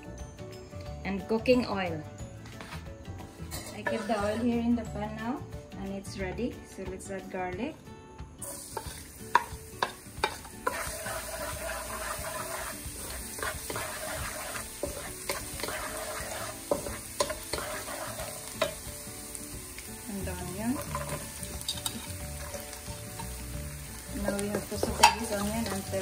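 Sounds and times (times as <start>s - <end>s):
garlic sizzling in oil: 3.7s - 4.6s, 8.4s - 26.0s.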